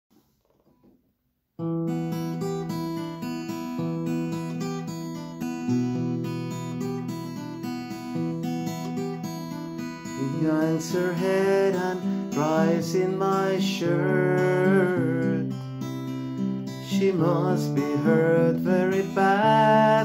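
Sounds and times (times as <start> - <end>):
acoustic guitar chords: 1.6 - 20.0.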